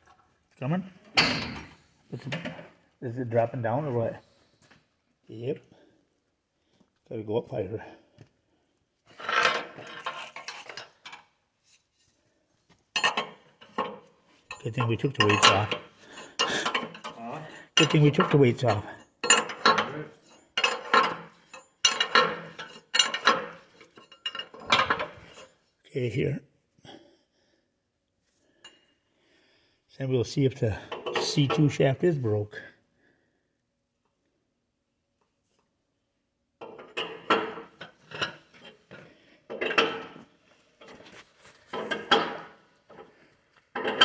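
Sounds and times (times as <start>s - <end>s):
metal bar clanking and rattling: 1.1s - 2.7s, 12.9s - 25.6s, 36.6s - 43.1s, 43.7s - 44.0s.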